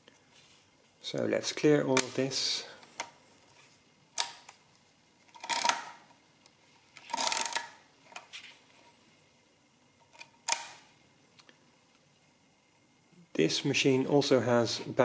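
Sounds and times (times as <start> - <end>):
metallic clatter of calculator: 5.3 - 5.9, 7.0 - 7.7.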